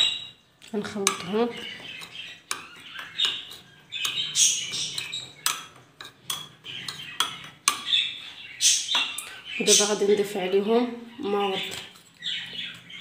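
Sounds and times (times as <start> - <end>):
metal spoon scraping ceramic bowl: 0.0 - 9.9.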